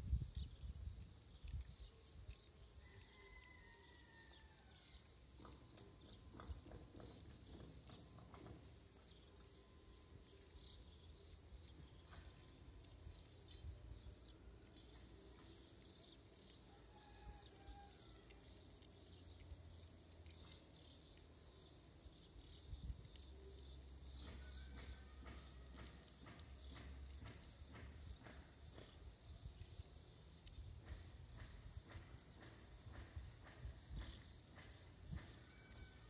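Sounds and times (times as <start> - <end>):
kittens crunching dry food: 0.1 - 24.2.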